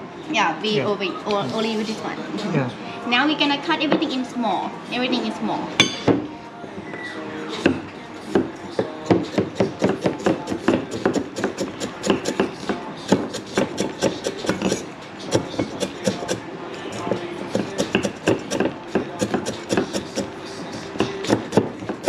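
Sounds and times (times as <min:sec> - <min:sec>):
cleaver chopping on wooden board: 0:08.4 - 0:14.8, 0:17.0 - 0:20.3, 0:21.0 - 0:22.0.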